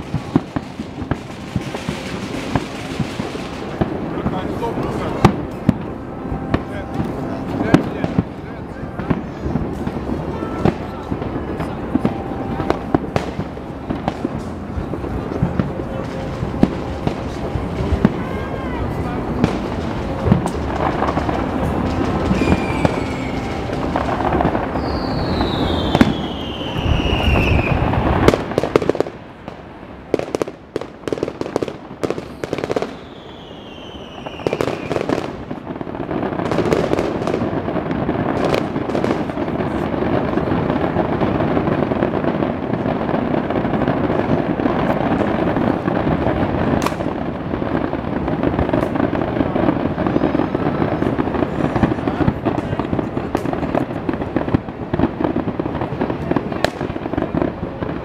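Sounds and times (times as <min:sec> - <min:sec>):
fireworks falling whistles: 0:00.0 - 0:29.0, 0:30.1 - 0:41.0
fireworks bangs and crackling: 0:00.0 - 0:58.0.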